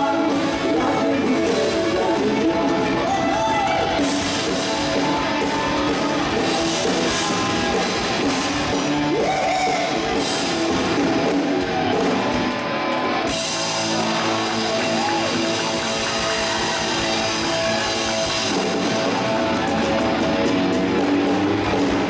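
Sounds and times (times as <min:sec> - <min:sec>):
electric guitar: 0:00.0 - 0:22.0
live rock band playing: 0:00.0 - 0:22.0.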